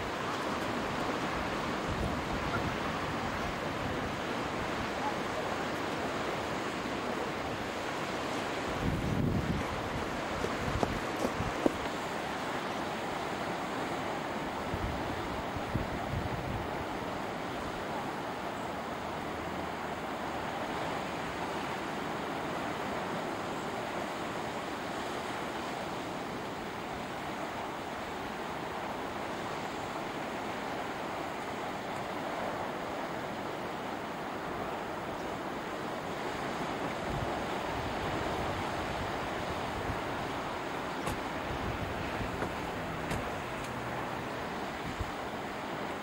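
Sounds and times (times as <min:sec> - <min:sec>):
surf washing over rocks: 0:00.0 - 0:46.0
wind buffeting microphone: 0:08.5 - 0:12.0, 0:36.9 - 0:45.2.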